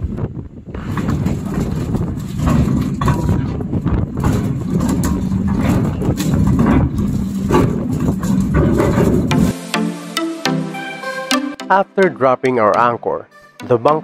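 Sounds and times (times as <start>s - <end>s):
anchor chain clanking: 1.1s - 9.5s.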